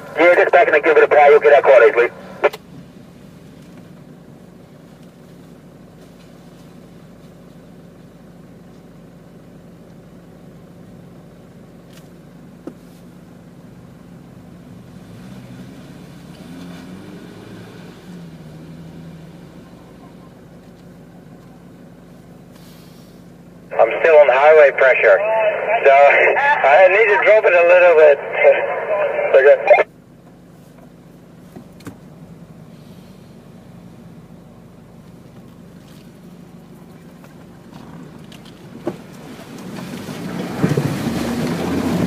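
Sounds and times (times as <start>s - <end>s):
engine idling inside cab: 0.0s - 15.0s, 19.4s - 39.6s
engine revving while climbing: 14.6s - 20.7s, 37.7s - 42.0s.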